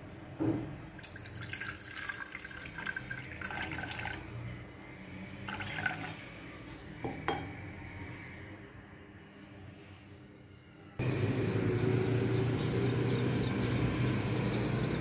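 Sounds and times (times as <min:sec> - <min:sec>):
water splashing and trickling: 0:01.0 - 0:04.6, 0:05.4 - 0:06.3.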